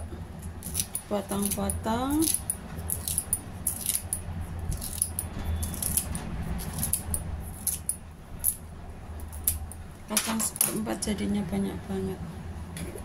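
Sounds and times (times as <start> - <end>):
low steady hum: 0.0 - 13.0
scissors snipping leaves: 0.5 - 8.6.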